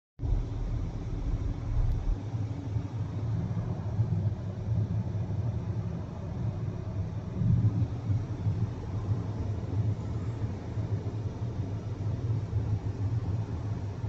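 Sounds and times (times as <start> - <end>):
car cabin road and engine rumble: 0.2 - 3.1.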